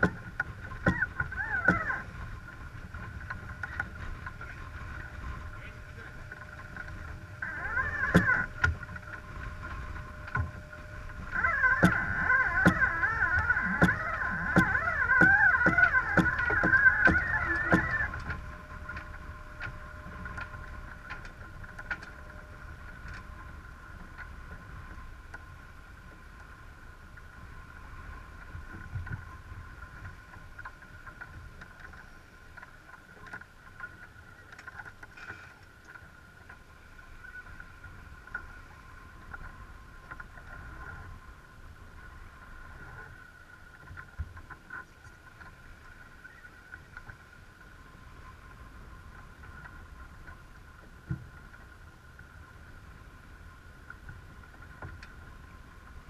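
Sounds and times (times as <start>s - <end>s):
water rushing along hull: 0.0s - 56.0s
wind on camera: 0.0s - 56.0s
faint high whine: 0.9s - 31.2s.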